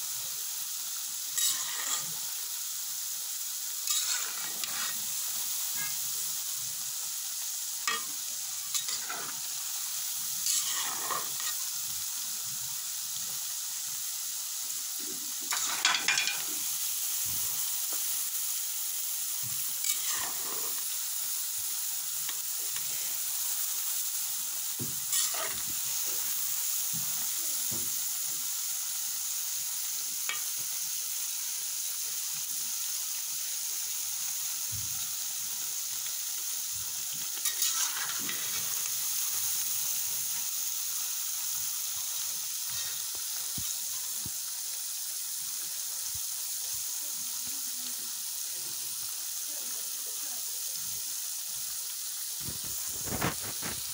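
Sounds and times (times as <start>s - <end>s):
dough deep-frying in oil: 0.0s - 53.9s
metal spoon scraping pan: 1.4s - 2.1s, 3.8s - 5.0s, 7.9s - 9.4s, 10.4s - 11.6s, 15.5s - 16.5s, 19.8s - 20.8s, 25.1s - 25.7s, 37.4s - 38.6s.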